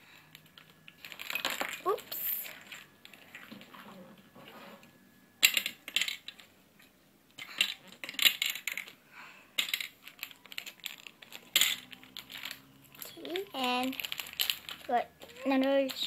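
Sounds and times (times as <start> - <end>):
candy balls rattling on plastic: 0.3 - 3.8, 5.4 - 6.5, 7.4 - 9.0, 9.6 - 16.0.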